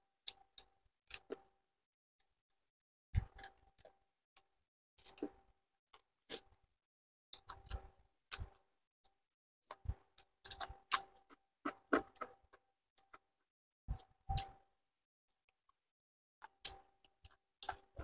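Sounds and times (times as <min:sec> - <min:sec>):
chewing and crunching: 0:00.2 - 0:01.5, 0:05.0 - 0:05.4, 0:07.4 - 0:08.7, 0:09.7 - 0:13.3, 0:16.4 - 0:18.0.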